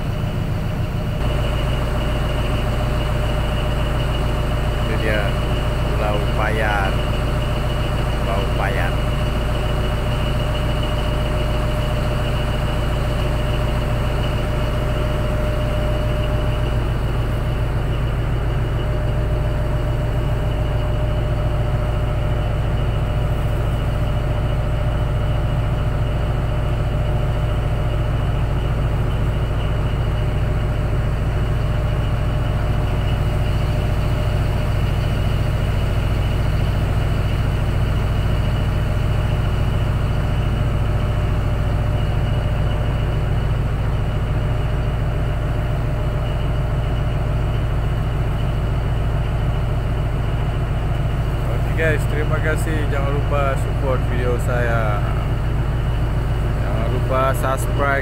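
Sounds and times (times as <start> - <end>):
diesel engine deep drone: 0.0 - 58.0.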